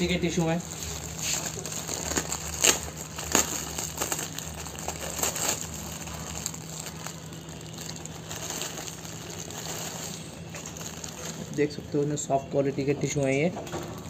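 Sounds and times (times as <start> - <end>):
plastic wrapper crinkling: 0.0 - 12.3, 13.6 - 14.0.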